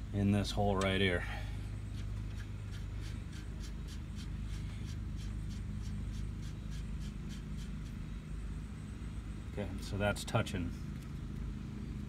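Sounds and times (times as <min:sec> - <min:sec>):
steady low hum: 0:00.0 - 0:12.0
metal-on-metal rubbing: 0:01.8 - 0:08.1.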